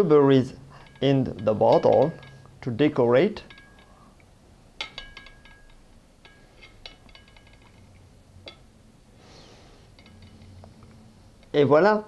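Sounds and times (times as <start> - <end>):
berries clinking into glass bottle: 0.7 - 4.0.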